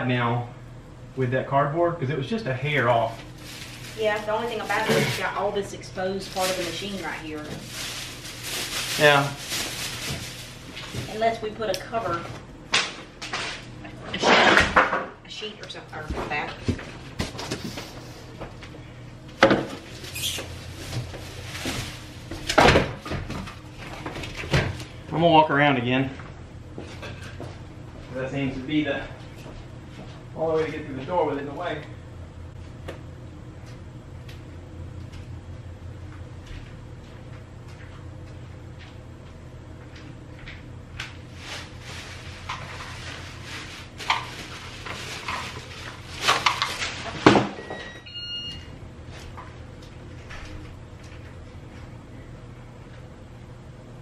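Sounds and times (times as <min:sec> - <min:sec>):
plastic rustling: 0:02.8 - 0:11.4, 0:19.8 - 0:22.6, 0:41.0 - 0:47.3.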